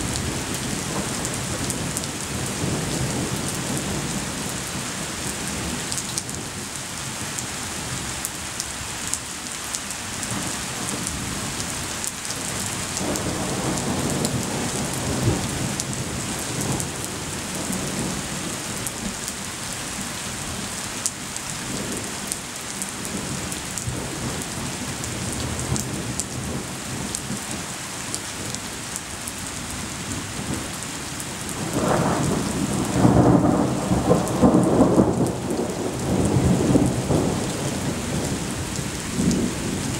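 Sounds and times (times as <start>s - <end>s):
rain hissing and pattering: 0.0s - 39.9s
thunder rumbling: 31.5s - 39.9s.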